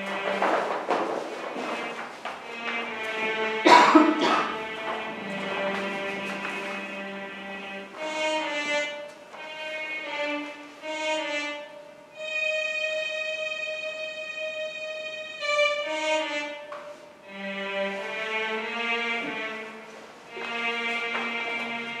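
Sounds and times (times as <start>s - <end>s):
violin playing slow melody: 0.0s - 0.5s, 1.5s - 22.0s.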